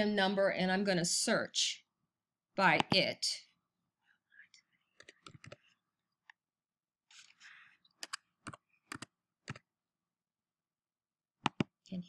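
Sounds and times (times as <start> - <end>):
keyboard keystrokes: 11.5 - 11.7.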